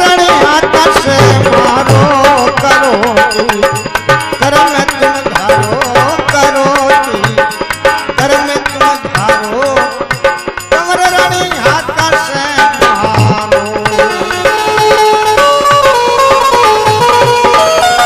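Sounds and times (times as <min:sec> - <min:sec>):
hand drum beat: 0:00.0 - 0:18.0
harmonium melody: 0:00.0 - 0:18.0.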